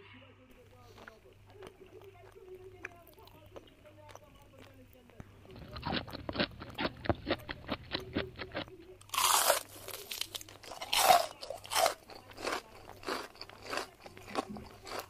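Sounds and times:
crunching and chewing: 0.5s - 15.0s.

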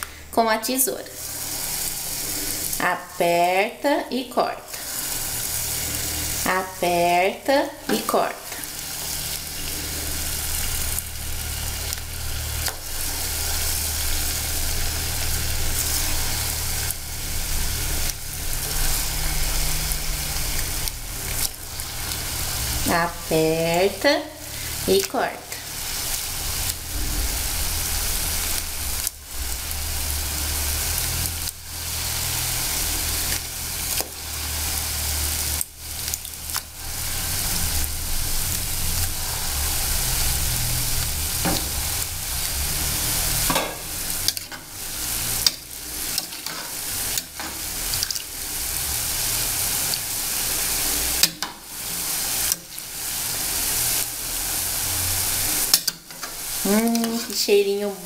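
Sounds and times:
fritters sizzling in hot oil: 0.0s - 58.0s.

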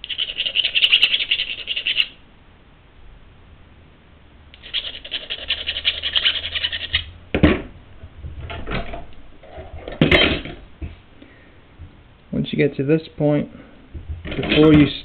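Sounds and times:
hand file rasping on metal: 4.6s - 7.1s.

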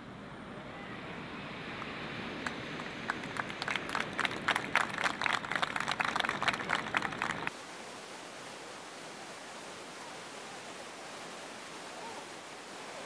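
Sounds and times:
audience clapping: 2.4s - 7.5s
crowd murmur: 3.3s - 7.5s.

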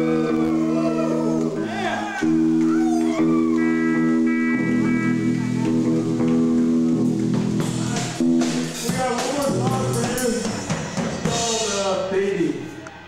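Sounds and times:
electric guitar chord: 3.5s - 8.9s
drums crashing: 5.1s - 12.6s.

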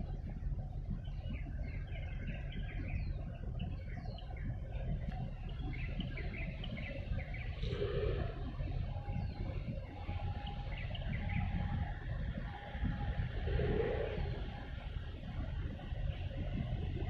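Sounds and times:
low outdoor rumble: 0.0s - 17.0s
small birds chirping: 0.0s - 17.0s.

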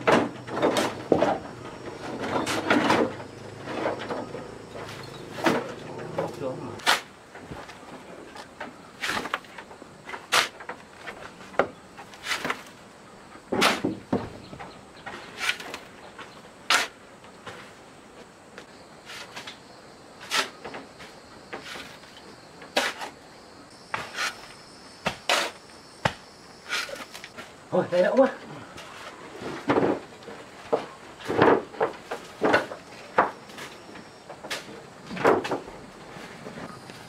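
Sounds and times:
hand tools knocking and scraping: 0.0s - 12.7s.

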